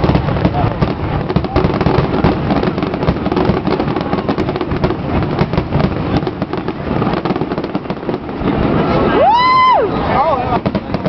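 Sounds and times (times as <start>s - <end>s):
fireworks bursting and crackling: 0.0s - 11.0s.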